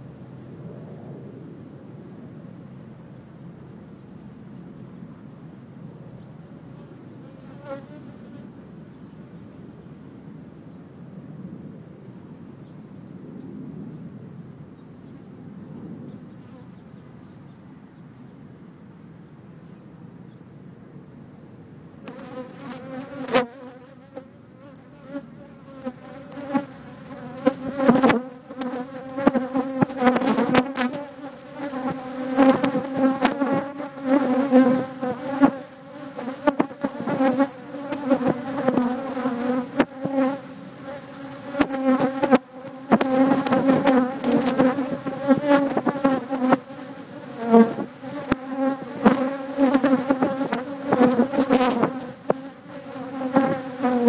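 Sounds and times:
bees buzzing: 0:22.0 - 0:54.0.

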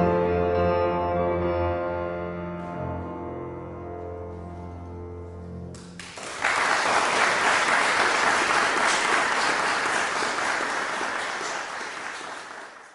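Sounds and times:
piano chord: 0:00.0 - 0:06.0
audience applause: 0:05.8 - 0:12.9.

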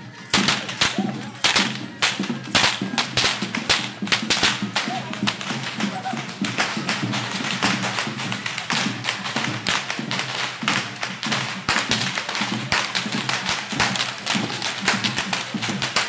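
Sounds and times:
music playing: 0:00.0 - 0:16.0
whips cracking: 0:00.3 - 0:07.0.

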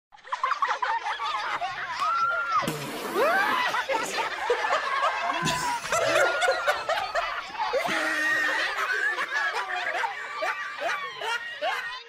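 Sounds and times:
crowd laughing: 0:00.2 - 0:12.0.

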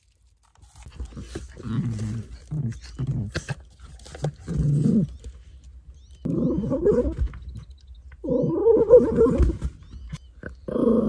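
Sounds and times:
small dog growling: 0:01.0 - 0:03.6, 0:04.4 - 0:05.2, 0:06.2 - 0:07.2, 0:08.2 - 0:09.6, 0:10.4 - 0:11.0.

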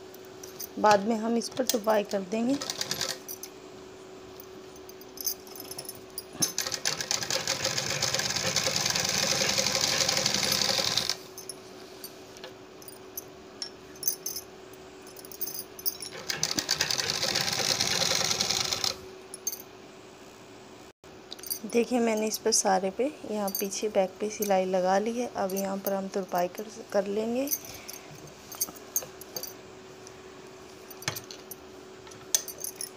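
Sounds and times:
sewing machine stitching: 0:02.5 - 0:03.2, 0:06.4 - 0:11.2, 0:16.1 - 0:19.0.

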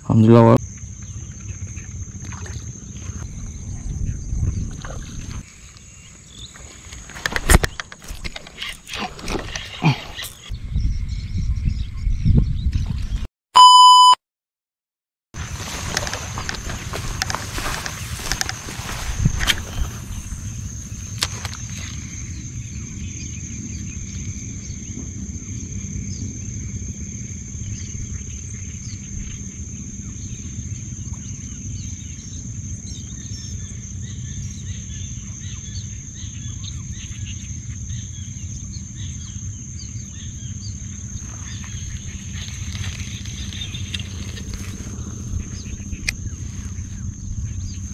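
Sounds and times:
insect drone: 0:00.0 - 0:12.4, 0:15.4 - 0:47.9
low rumble: 0:01.0 - 0:05.4, 0:38.4 - 0:47.9.

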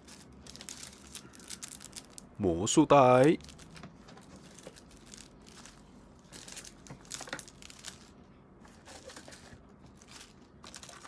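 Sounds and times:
plastic bag crinkling: 0:00.0 - 0:02.4, 0:03.0 - 0:11.0
rummaging in cardboard box: 0:04.2 - 0:08.1, 0:08.7 - 0:11.0.

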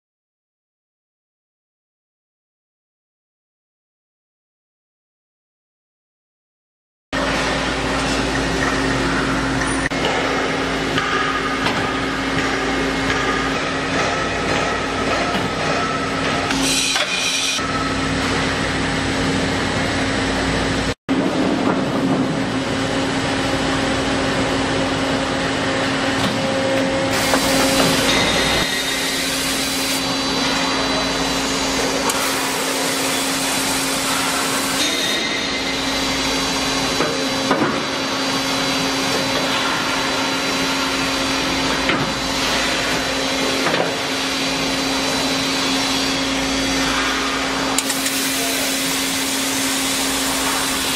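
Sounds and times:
drilling machine motor hum: 0:27.1 - 0:30.4, 0:44.1 - 0:50.9.

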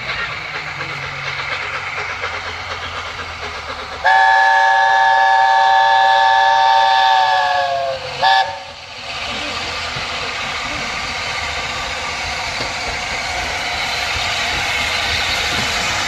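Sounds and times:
locomotive rumble and hiss: 0:00.0 - 0:16.0
steam chime whistle blast: 0:04.0 - 0:08.7.

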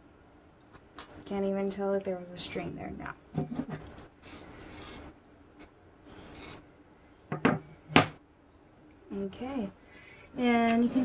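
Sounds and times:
wood scraping on wood: 0:03.4 - 0:05.2, 0:06.1 - 0:06.7
wooden frame knocking on table: 0:07.3 - 0:08.2.

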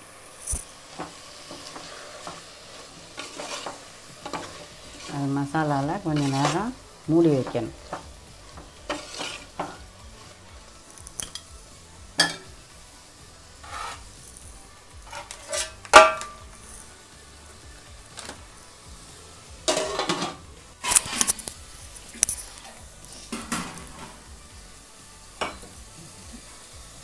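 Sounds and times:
light sizzle: 0:00.0 - 0:27.0
metal spatula scraping pot: 0:00.5 - 0:10.3, 0:13.6 - 0:14.2, 0:15.0 - 0:16.4, 0:19.7 - 0:24.2.

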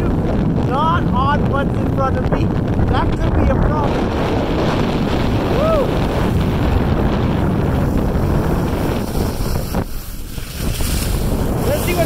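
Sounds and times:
wind buffeting microphone: 0:00.0 - 0:12.0
skis running over snow: 0:06.0 - 0:12.0.

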